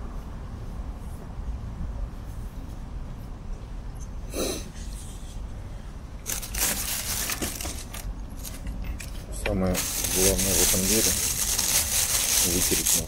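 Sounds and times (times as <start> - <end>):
steady low rumble: 0.0 - 6.6
plastic bag crinkling: 6.2 - 8.6, 9.7 - 13.0.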